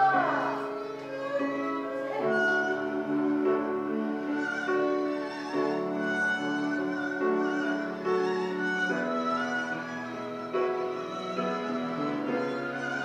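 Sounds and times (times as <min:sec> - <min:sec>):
woman singing with wide vibrato: 0:00.0 - 0:00.8.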